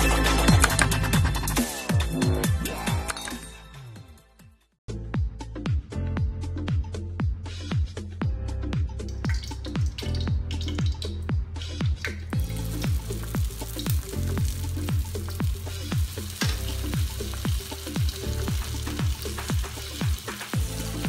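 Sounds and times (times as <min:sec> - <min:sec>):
electronic music with kick drum: 0:05.0 - 0:21.0
spring rolls sizzling in oil: 0:12.4 - 0:21.0.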